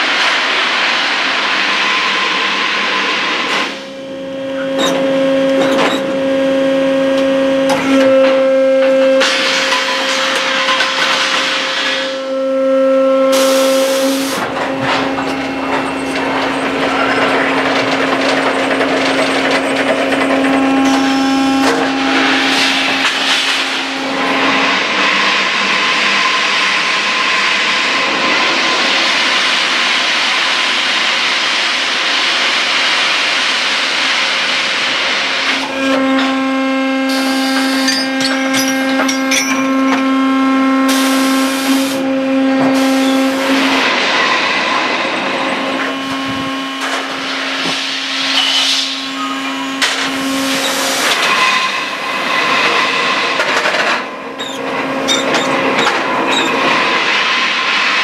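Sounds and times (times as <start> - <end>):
hydraulic motor whine: 3.1 - 27.2, 35.5 - 57.6
hiss bursts: 13.3 - 14.4.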